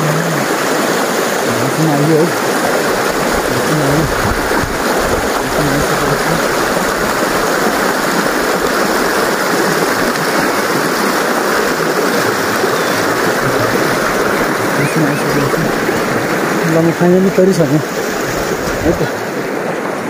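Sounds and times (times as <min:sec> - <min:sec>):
stream rushing over rocks: 0:00.0 - 0:20.0.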